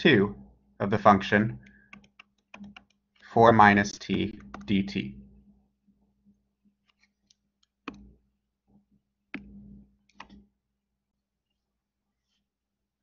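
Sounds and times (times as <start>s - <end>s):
computer mouse clicks: 1.6s - 3.2s, 4.1s - 4.7s, 6.8s - 8.1s, 9.3s - 10.4s.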